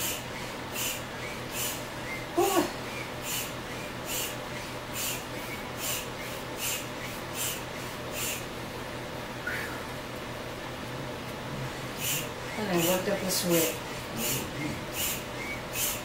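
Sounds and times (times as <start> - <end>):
hand pump puffing air: 0.0 - 8.5, 11.7 - 16.0.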